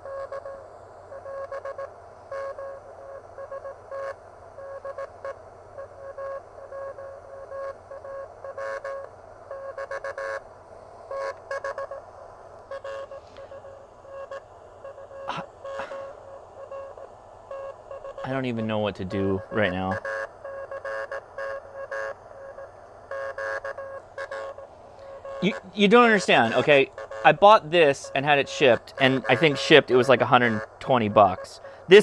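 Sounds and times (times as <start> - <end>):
morse code beeps: 0.0 - 10.4, 12.7 - 32.0
receiver hiss: 0.0 - 32.0
static clicks: 11.1 - 32.0.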